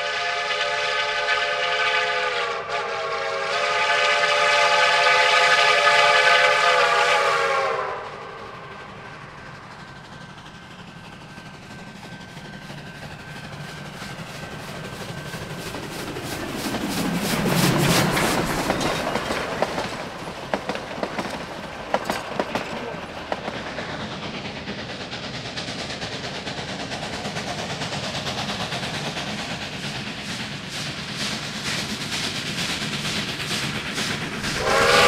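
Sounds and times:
steam locomotive rumbling past: 0.0 - 35.0
wheels clicking over rail joints: 12.6 - 34.6.

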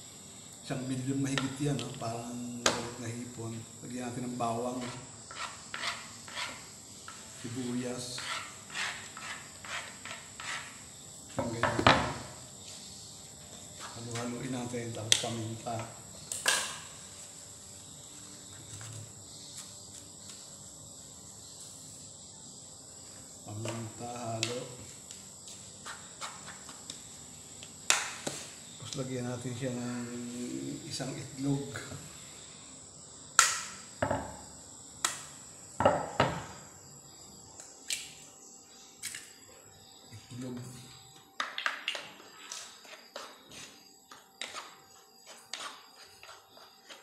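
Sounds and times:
crickets chirring: 0.0 - 47.0.

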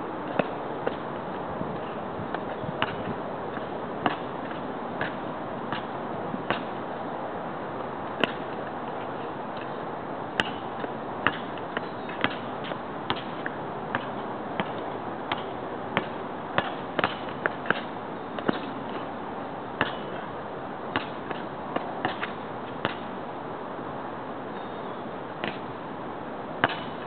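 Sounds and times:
basketball bouncing on asphalt: 0.3 - 1.1, 1.8 - 6.8, 8.2 - 19.1, 19.8 - 20.3, 20.9 - 23.1, 26.6 - 27.0.

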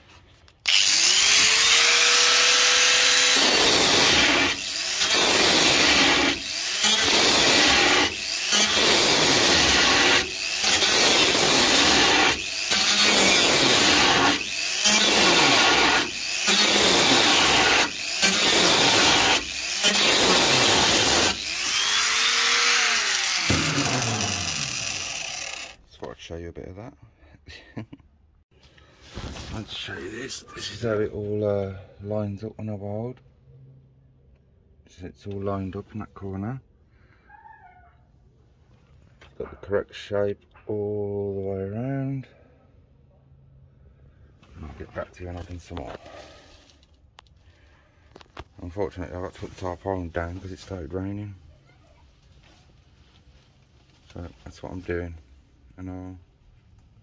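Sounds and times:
angle grinder cutting sheet steel: 0.6 - 25.8.

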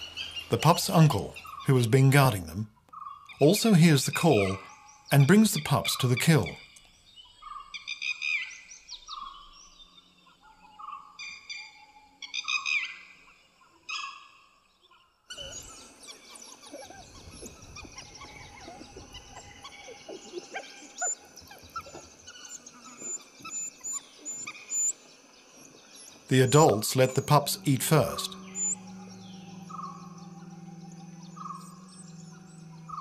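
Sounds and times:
birds chirping: 0.0 - 33.0
wild dog whistling calls: 15.3 - 25.0, 25.9 - 33.0.

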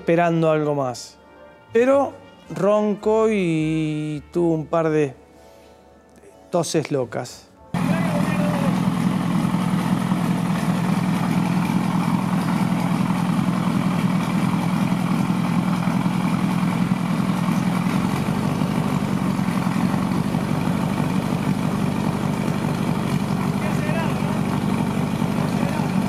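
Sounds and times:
race car engine idling: 7.8 - 26.0.

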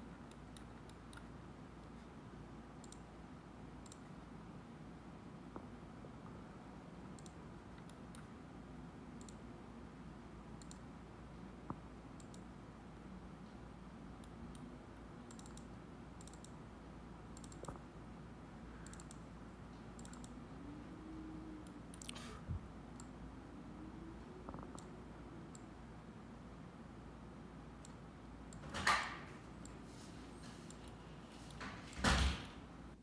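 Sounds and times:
faint room hum: 0.0 - 33.0
computer mouse clicking: 0.2 - 1.3, 2.8 - 3.1, 3.8 - 4.1, 7.2 - 8.3, 9.2 - 9.4, 10.6 - 10.8, 12.2 - 12.5, 15.3 - 16.6, 17.4 - 17.8, 18.8 - 19.2, 19.9 - 20.4, 21.6 - 22.2, 24.6 - 24.9, 25.5 - 25.7, 27.8 - 28.0.

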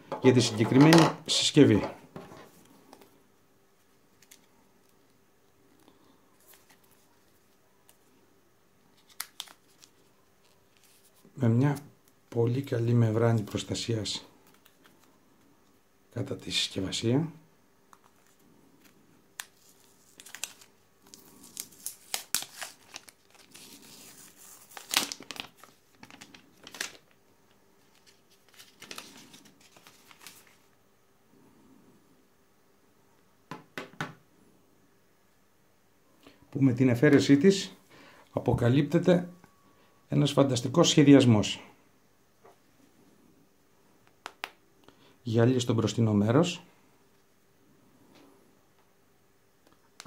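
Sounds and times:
plastic film crinkling: 8.9 - 11.2, 18.0 - 27.2, 27.8 - 30.7.

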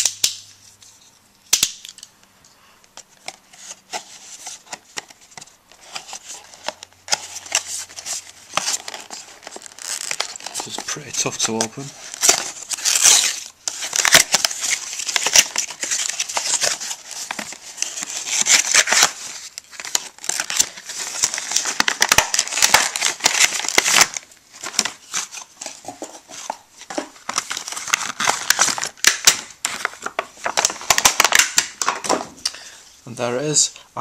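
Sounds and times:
cardboard packaging pulled open: 5.8 - 31.4
plastic bag crinkling: 7.1 - 32.1.

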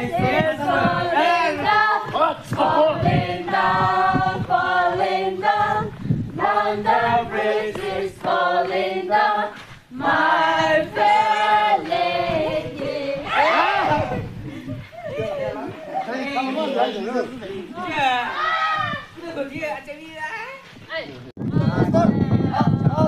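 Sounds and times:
group singing a chant: 0.0 - 14.2.

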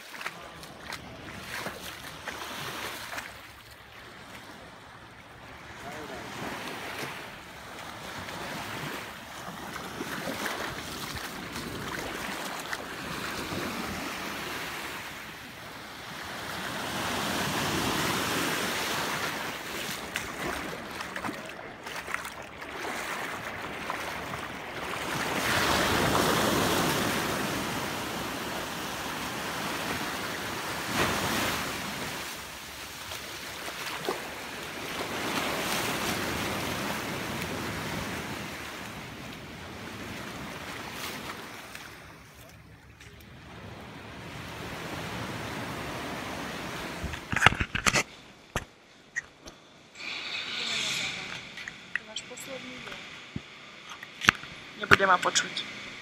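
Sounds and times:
foot splashing in shallow water: 0.0 - 4.5, 7.7 - 13.8, 19.2 - 25.9
small waves washing on sand: 0.0 - 48.4, 49.6 - 56.0.

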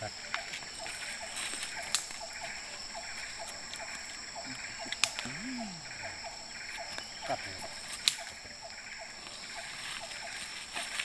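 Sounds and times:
short repeating call: 5.2 - 6.2.

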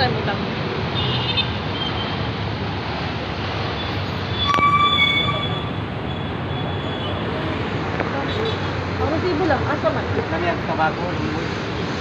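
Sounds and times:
street traffic rumble: 0.0 - 12.0
short high-pitched tone: 4.2 - 7.0.

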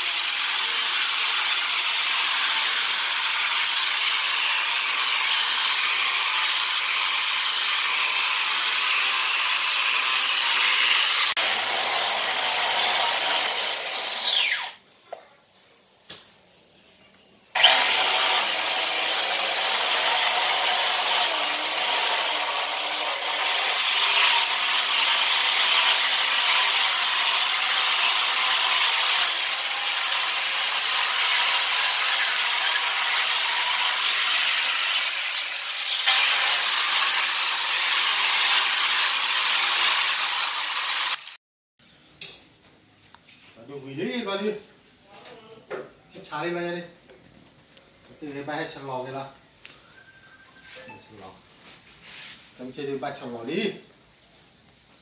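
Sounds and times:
angle grinder sanding floor: 0.0 - 14.8, 17.6 - 41.4.

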